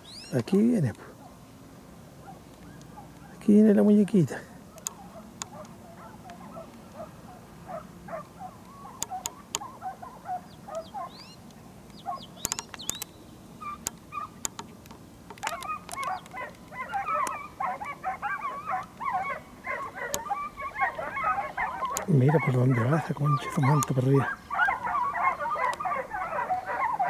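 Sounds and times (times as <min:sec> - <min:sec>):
dogs yelping: 0:02.2 - 0:03.4, 0:04.6 - 0:14.6, 0:15.3 - 0:27.0
sharp clicks: 0:04.8 - 0:06.8, 0:08.6 - 0:09.7, 0:10.7 - 0:18.0, 0:21.8 - 0:22.1, 0:23.4 - 0:24.0.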